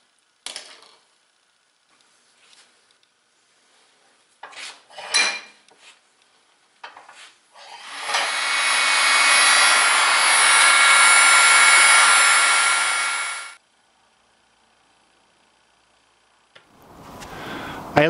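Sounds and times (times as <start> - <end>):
heat gun blowing: 7.6 - 13.6.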